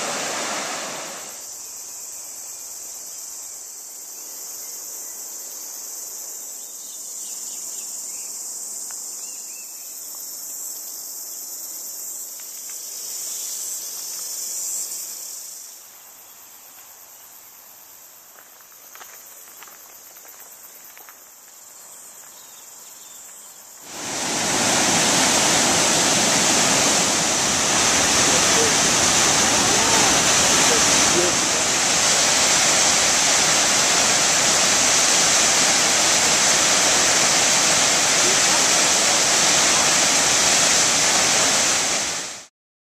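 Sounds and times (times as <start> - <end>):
waterfall rushing: 0.0 - 1.4, 23.8 - 42.5
insect chorus: 0.0 - 42.4.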